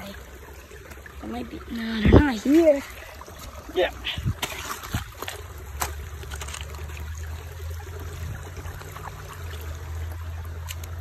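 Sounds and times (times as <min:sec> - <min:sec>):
creek water trickling over rocks: 0:00.0 - 0:11.0
low rumble on microphone: 0:04.1 - 0:10.6.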